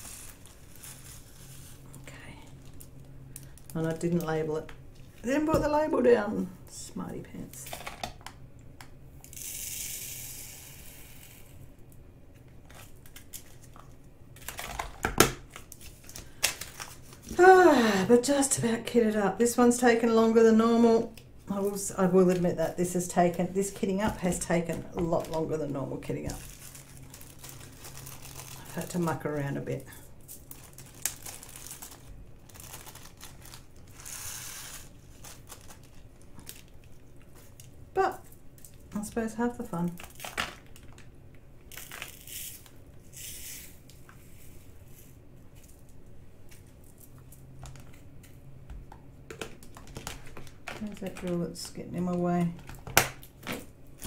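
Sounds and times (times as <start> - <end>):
plastic bags rustling: 21.5 - 37.8.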